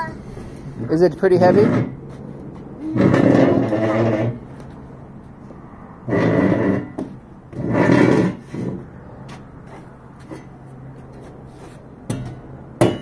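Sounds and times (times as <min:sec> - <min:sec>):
metal spade scraping wooden floor: 0:02.8 - 0:04.4, 0:06.1 - 0:08.8.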